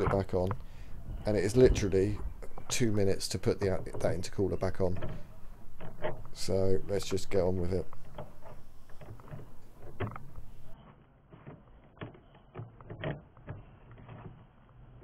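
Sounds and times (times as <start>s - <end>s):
metal parts and tools clicking: 1.4s - 10.8s.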